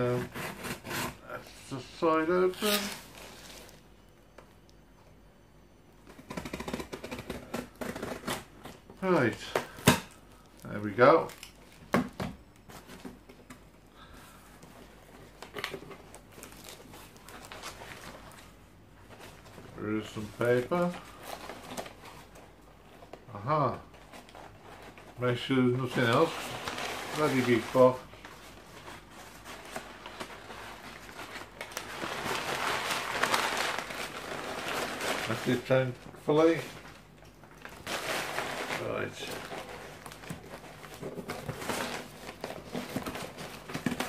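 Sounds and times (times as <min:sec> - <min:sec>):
cardboard scrape: 0:00.0 - 0:01.2
packing paper rustling and crinkling: 0:00.0 - 0:03.9, 0:14.0 - 0:44.0.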